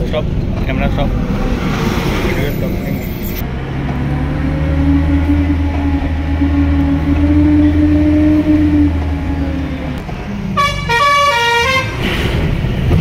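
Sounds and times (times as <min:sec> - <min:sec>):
vehicle engine humming: 0:00.0 - 0:13.0
multi-note horn: 0:10.6 - 0:12.0.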